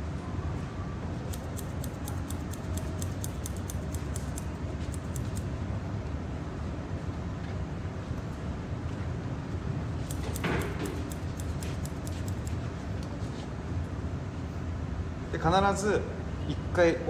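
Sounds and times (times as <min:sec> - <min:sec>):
scissors snipping hair: 0:01.3 - 0:05.5, 0:10.0 - 0:13.2.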